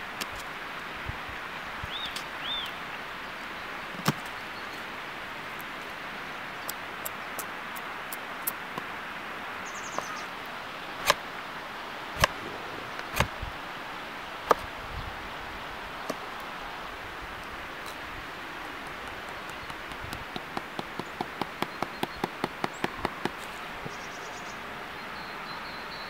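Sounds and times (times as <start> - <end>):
outdoor hiss: 0.0 - 26.0.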